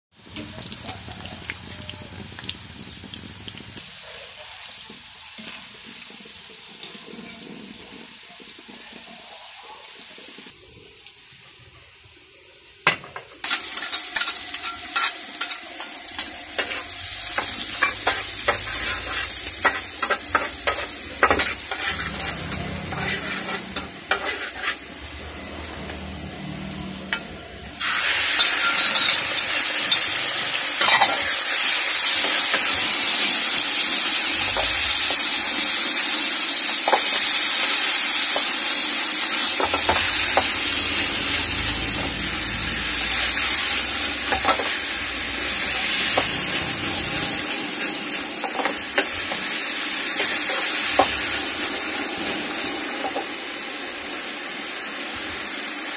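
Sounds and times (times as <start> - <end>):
loud sizzle of meat in pan: 0.1 - 55.9
potatoes deep-frying in oil: 0.1 - 55.9
metal spatula scraping frying pan: 13.4 - 30.2, 30.8 - 35.3, 39.4 - 49.5.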